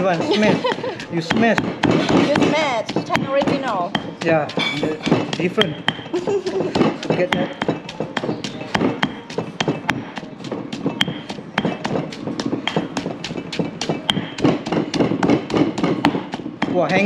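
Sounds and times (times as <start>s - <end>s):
stone pestle pounding in mortar: 0.0s - 17.0s.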